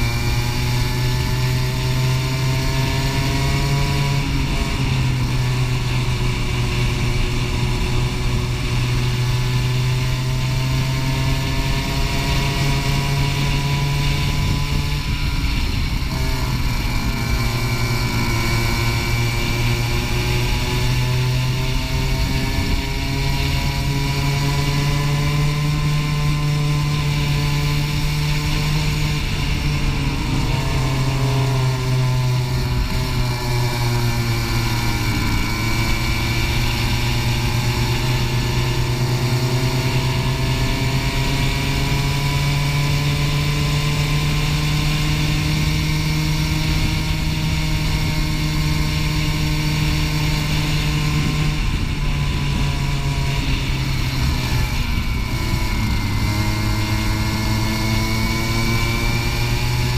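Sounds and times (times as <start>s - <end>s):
go-kart engine running hard: 0.0s - 59.9s.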